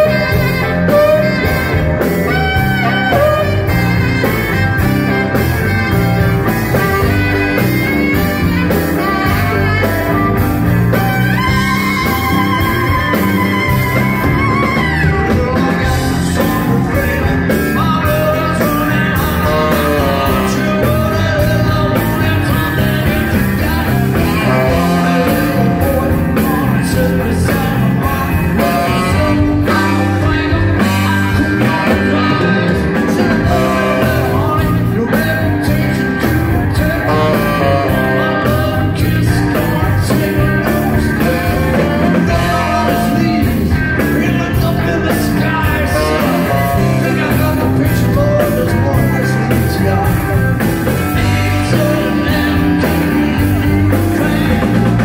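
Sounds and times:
live rock band playing: 0.0s - 55.0s
person singing with vibrato: 0.0s - 55.0s.

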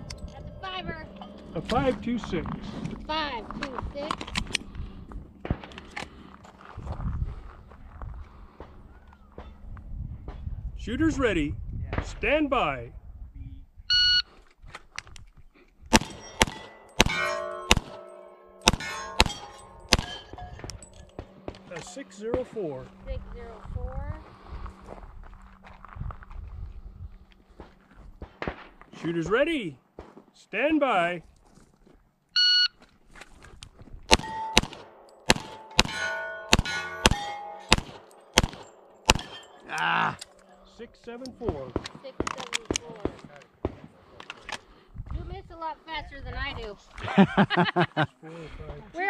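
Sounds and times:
shot timer beep: 13.9s - 14.2s
pistol shots: 15.9s - 18.0s, 18.6s - 20.5s, 34.1s - 39.6s
steel plates clanging: 16.0s - 22.3s, 34.1s - 40.4s.

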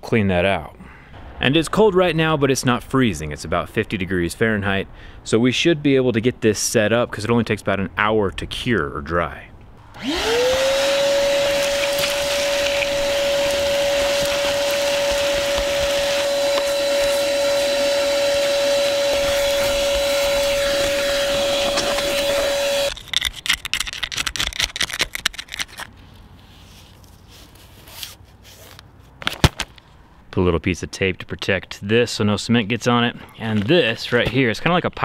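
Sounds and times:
vacuum whining: 9.8s - 23.0s
scattered clicks and rattles: 22.9s - 25.9s.

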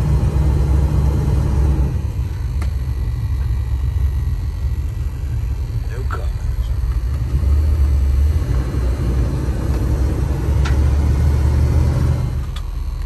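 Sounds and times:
motorhome engine and road noise: 0.0s - 13.0s.

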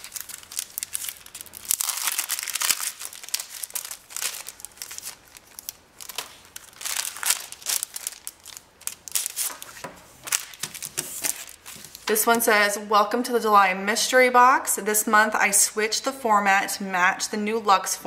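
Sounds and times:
cellophane sleeve crinkling: 0.0s - 12.4s.

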